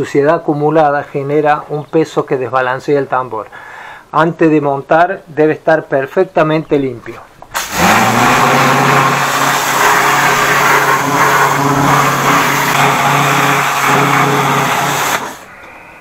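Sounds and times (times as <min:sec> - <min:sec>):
pressure washer motor humming: 0:07.5 - 0:15.5
water spraying on metal: 0:07.5 - 0:15.5.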